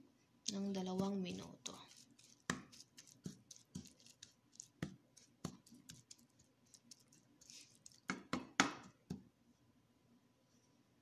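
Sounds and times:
spatula knocking and scraping a pan: 0.9 - 6.2.

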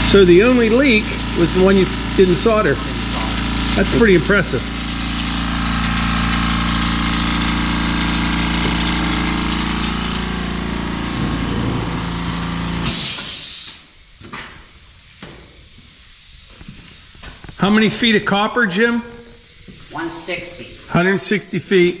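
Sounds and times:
air compressor running: 0.0 - 22.0
short hiss of air: 4.8 - 17.6, 19.1 - 20.9.

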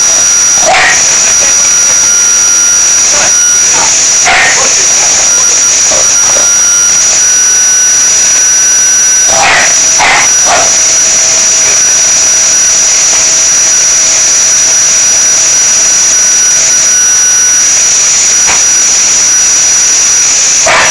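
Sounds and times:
dog barking: 0.0 - 14.2, 20.4 - 20.9
electric motor whine: 0.0 - 20.9.

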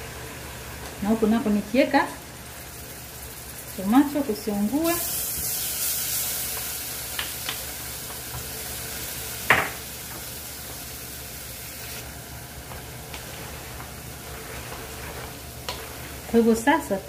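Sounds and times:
sauce sizzling in saucepan: 0.0 - 17.0
wooden spoon stirring: 12.6 - 17.0.

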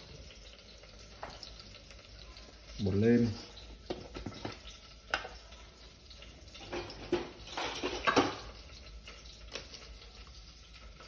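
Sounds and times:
plastic tub and utensils handled: 3.3 - 5.3.

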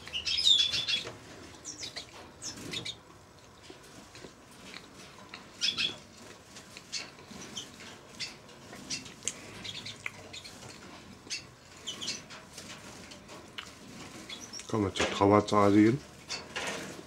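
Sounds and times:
birds chirping: 0.0 - 3.9, 4.7 - 12.4, 13.3 - 15.1.

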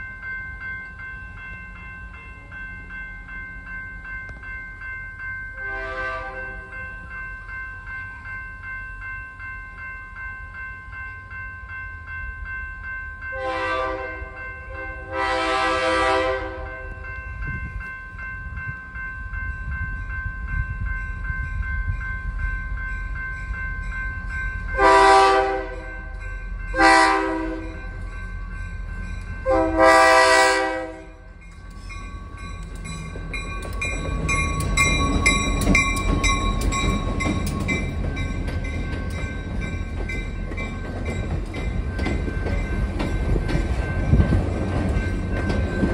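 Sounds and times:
crossing signal bell ringing: 0.0 - 45.9
train rumbling past: 0.0 - 45.9
locomotive air horn: 5.6 - 6.7, 13.4 - 16.9, 24.8 - 25.9, 26.8 - 27.8, 29.5 - 31.2
wheels clicking over rail joints: 31.4 - 45.9.

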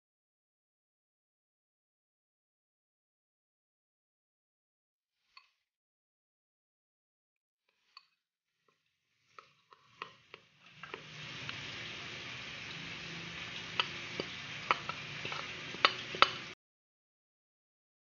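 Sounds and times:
steady hiss: 9.2 - 16.6.

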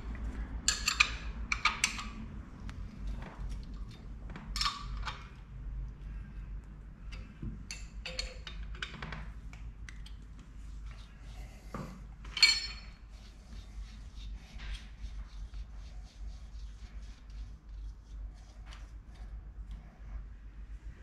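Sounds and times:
metal tools clinking: 12.3 - 13.0.

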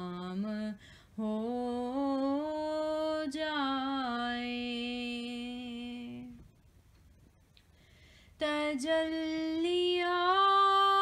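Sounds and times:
person singing unaccompanied: 8.4 - 11.0.

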